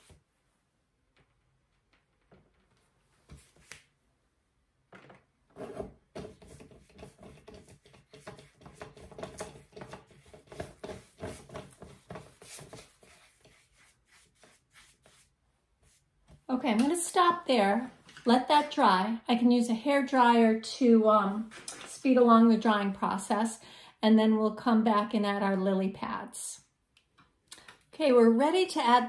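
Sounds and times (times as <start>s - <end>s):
paintbrush scrubbing on canvas: 5.6s - 16.2s.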